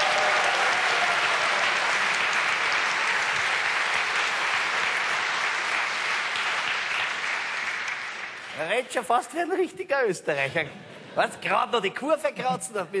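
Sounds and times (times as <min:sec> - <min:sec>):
audience applauding: 0:00.0 - 0:09.1.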